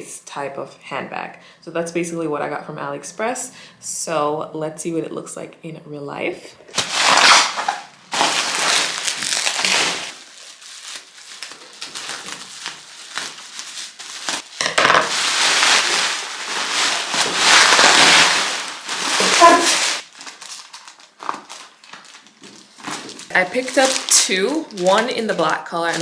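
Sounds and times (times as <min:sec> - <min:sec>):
bubble wrap crinkling: 0:06.7 - 0:26.0.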